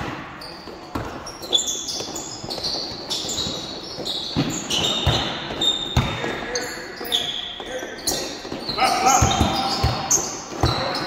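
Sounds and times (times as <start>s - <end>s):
sneakers squeaking on court: 0.0s - 11.0s
basketball bouncing: 4.3s - 6.4s, 8.5s - 11.0s.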